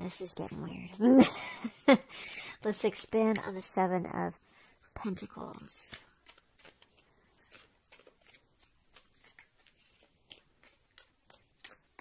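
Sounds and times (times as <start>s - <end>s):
cards shuffling and clicking: 5.0s - 12.0s.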